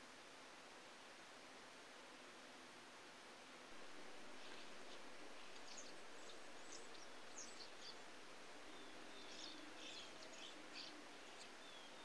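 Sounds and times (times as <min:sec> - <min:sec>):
steady hiss: 0:00.0 - 0:12.0
songbirds chirping: 0:03.7 - 0:12.0.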